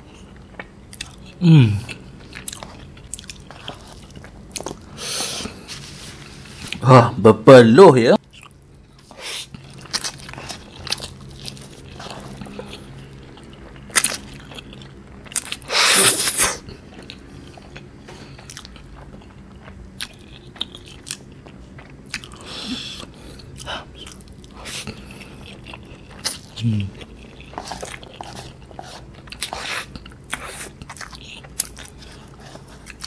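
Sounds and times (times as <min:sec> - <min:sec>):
wet chewing and mouth clicks: 0:00.4 - 0:04.9, 0:16.7 - 0:33.0.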